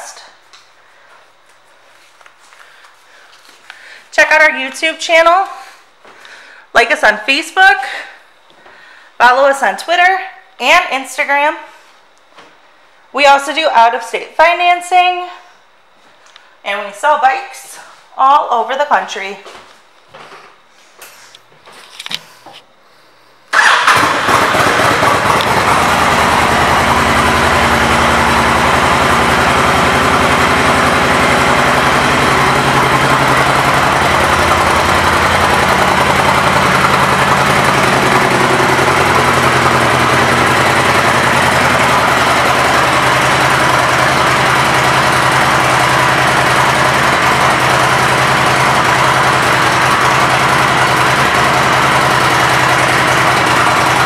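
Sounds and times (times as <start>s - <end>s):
motorcycle engine starting and idling: 23.5s - 54.0s.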